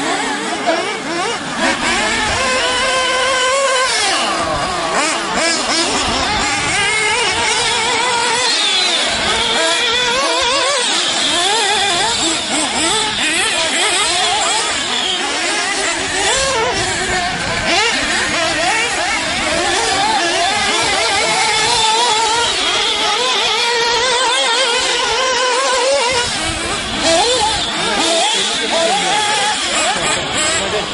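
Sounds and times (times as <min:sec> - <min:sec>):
rc car motors revving: 0:00.0 - 0:30.9.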